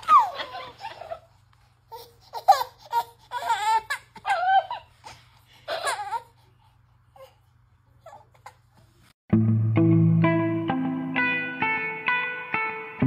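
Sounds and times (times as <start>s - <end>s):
toddler crying: 1.9s - 4.9s.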